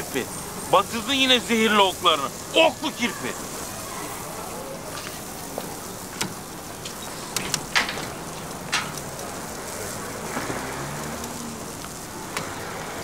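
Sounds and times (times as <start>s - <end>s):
street background hiss: 0.0s - 13.0s
sharp knocks and clicks: 6.2s - 9.2s.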